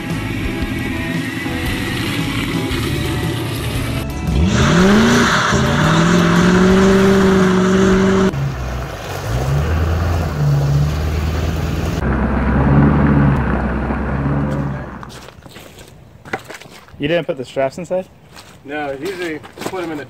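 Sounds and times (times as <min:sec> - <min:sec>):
car engine revving: 0:00.0 - 0:15.2
pickup truck engine: 0:00.0 - 0:15.4.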